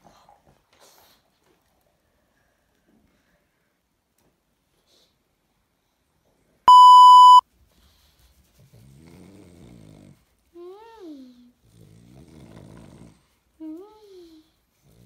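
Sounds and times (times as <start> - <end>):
electronic bleep: 6.7 - 7.4
dog snoring: 8.9 - 10.2, 11.6 - 13.3.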